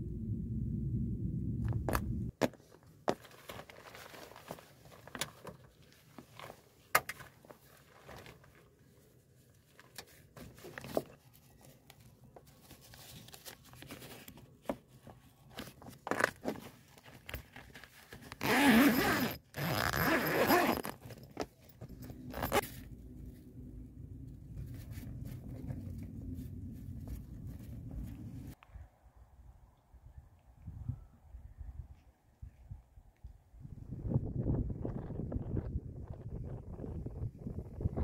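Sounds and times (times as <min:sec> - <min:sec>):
zipper pulled: 0:16.0 - 0:22.8.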